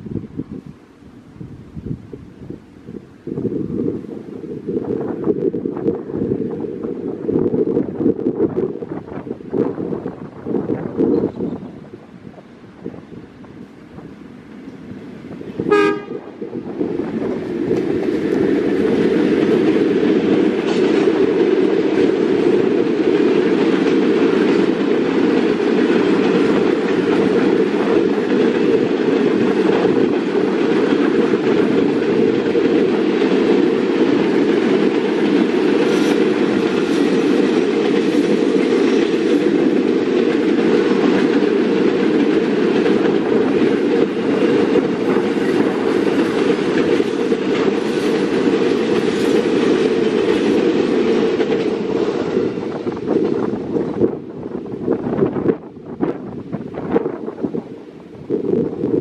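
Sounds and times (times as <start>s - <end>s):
freight train rumbling past: 0.0s - 59.0s
wheels clicking over rail joints: 13.5s - 55.6s.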